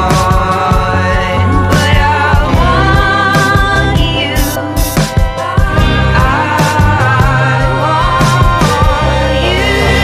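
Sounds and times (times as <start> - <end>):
steady bass line: 0.0 - 10.0
sung melody: 0.0 - 10.0.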